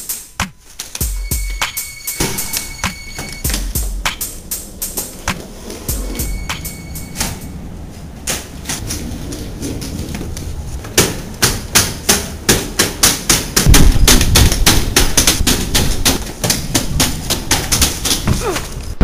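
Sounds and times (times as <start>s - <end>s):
rolling bag wheels knocking on stairs: 8.2s - 19.0s.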